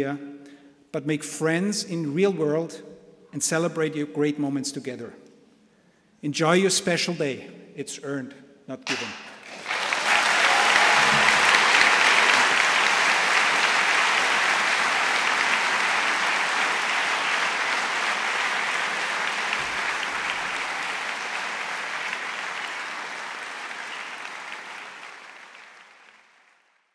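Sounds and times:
audience applauding: 9.4 - 26.9.

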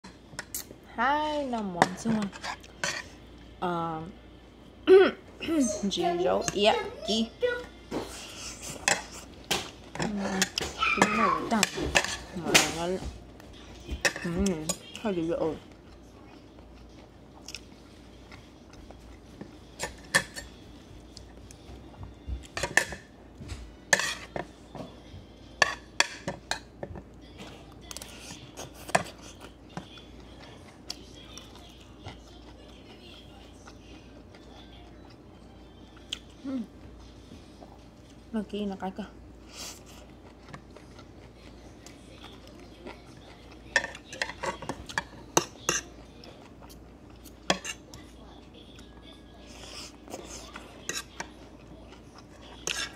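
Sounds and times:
utensils clinking on dishes: 8.0 - 12.9, 19.4 - 20.6, 22.5 - 23.1, 23.9 - 24.5, 43.7 - 46.0, 46.6 - 47.8.

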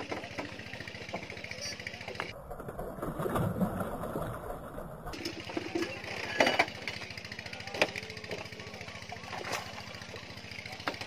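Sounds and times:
small engine running: 0.0 - 2.4, 5.1 - 11.0.

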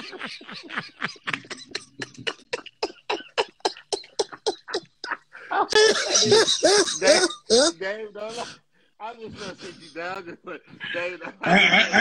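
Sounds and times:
men laughing hard: 0.0 - 7.7, 10.8 - 12.0.

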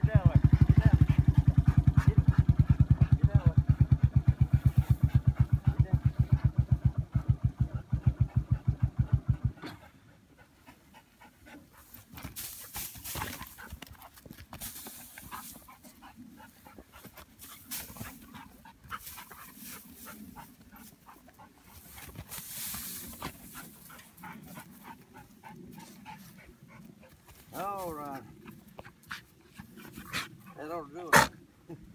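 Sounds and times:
dog panting: 0.0 - 31.8
dry hay rustling: 11.8 - 21.0, 21.6 - 24.9.

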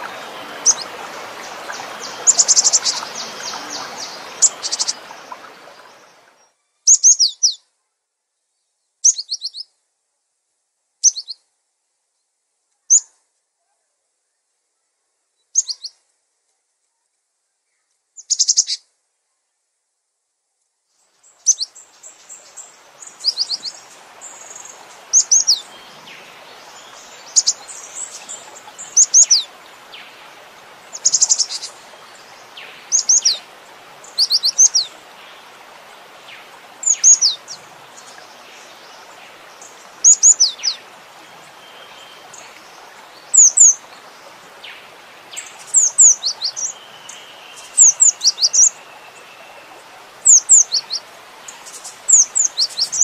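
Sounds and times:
steady hiss: 0.0 - 6.4, 20.9 - 53.0.

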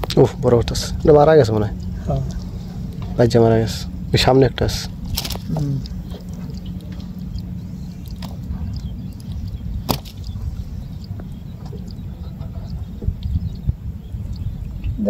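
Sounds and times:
steady low rumble: 0.0 - 15.0
net rustling: 5.1 - 5.8.

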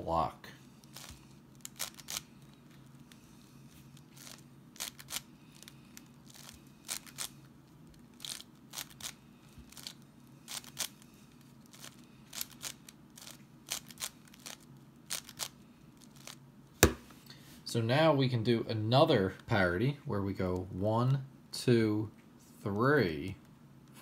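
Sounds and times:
faint low hum: 0.0 - 24.0.

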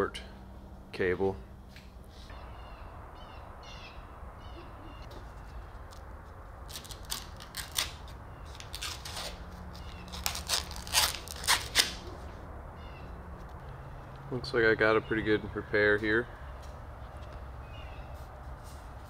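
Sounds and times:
plastic film and tape peeling: 5.9 - 12.3.

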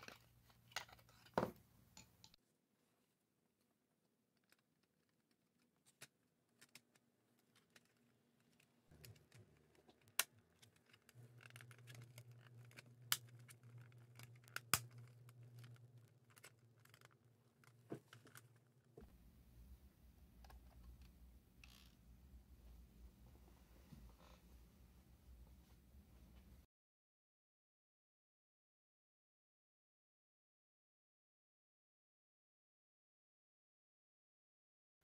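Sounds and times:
plastic snaps: 9.0 - 15.9.

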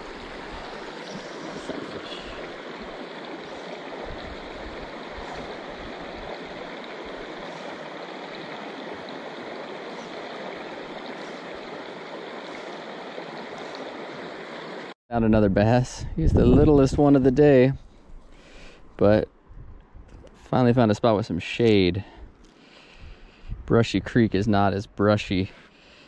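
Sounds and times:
creek water running over rocks: 0.0 - 15.0.

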